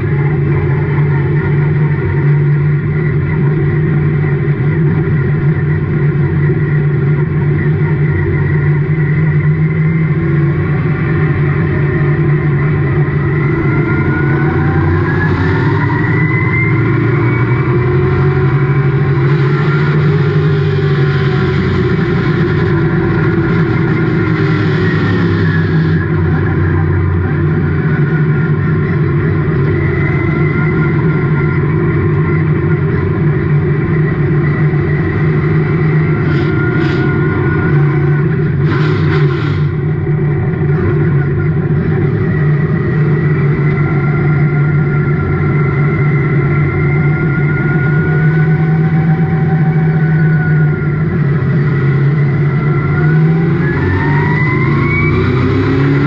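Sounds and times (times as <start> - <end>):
race car engine running: 0.0 - 56.0
whining note: 0.0 - 56.0.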